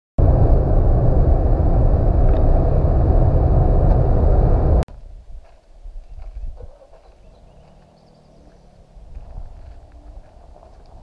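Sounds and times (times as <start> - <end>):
quiet outdoor sound: 0.2 - 11.0
road and engine noise in car: 7.3 - 11.0.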